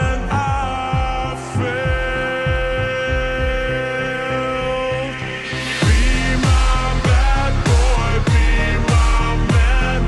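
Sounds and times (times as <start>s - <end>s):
deep bass hits sliding down: 5.4s - 10.0s.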